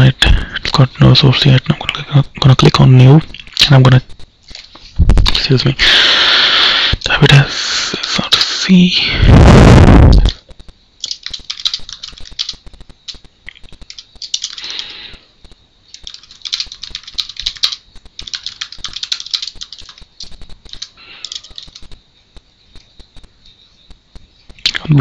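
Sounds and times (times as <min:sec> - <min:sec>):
computer keyboard typing: 0:10.1 - 0:15.0, 0:15.9 - 0:22.0.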